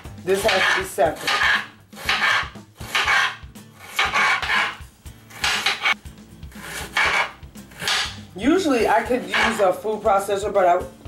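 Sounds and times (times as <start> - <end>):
knife slicing onion on board: 0.1 - 8.3, 9.2 - 9.6.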